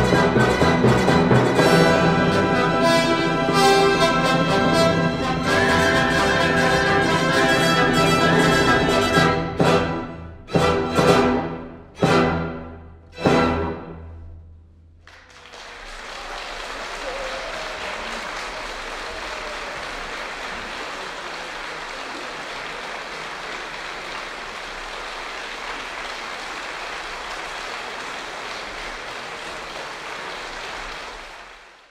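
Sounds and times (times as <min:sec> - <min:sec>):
audience applause: 0:15.0 - 0:31.9.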